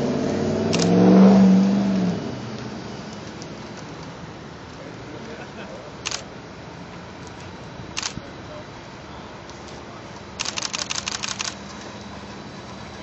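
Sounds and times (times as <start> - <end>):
tram humming past: 0.0 - 13.0
camera shutter clicks: 0.7 - 1.0, 6.0 - 6.3, 8.0 - 8.2, 10.4 - 11.9.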